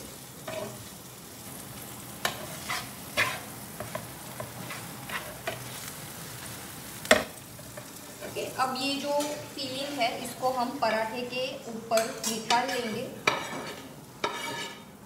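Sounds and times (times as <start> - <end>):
frying sizzle: 0.0 - 15.0
metal spatula scraping griddle: 0.4 - 0.9, 2.2 - 5.9, 9.0 - 10.3, 11.9 - 14.9.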